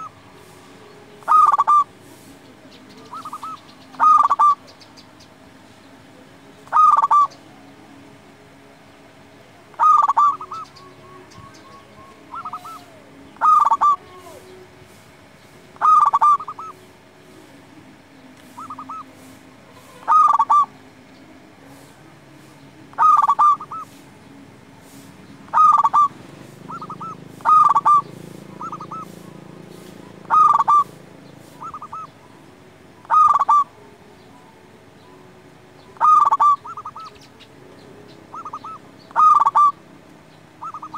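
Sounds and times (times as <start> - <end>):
dove cooing: 0.0 - 4.8, 6.6 - 7.4, 9.7 - 16.8, 18.4 - 20.8, 21.7 - 24.1, 24.8 - 32.4, 33.0 - 33.8, 35.9 - 37.5, 38.3 - 39.8, 40.6 - 40.9.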